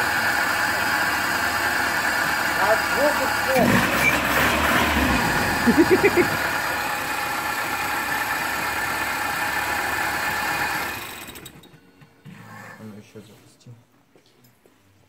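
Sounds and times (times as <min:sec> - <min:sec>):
car engine running and stopping: 0:00.0 - 0:11.9.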